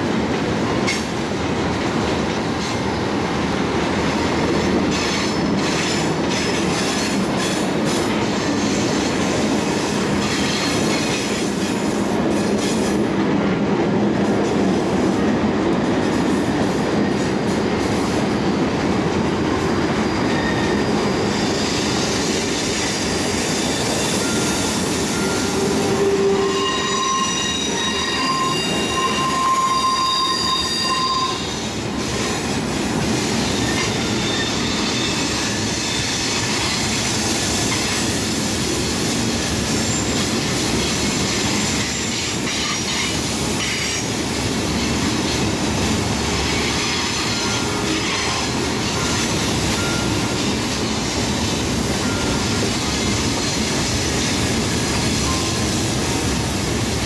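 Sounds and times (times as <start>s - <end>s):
train wheels rumbling on rail: 0.0s - 57.0s
high-pitched wheel squeal: 20.3s - 31.7s, 33.6s - 36.8s.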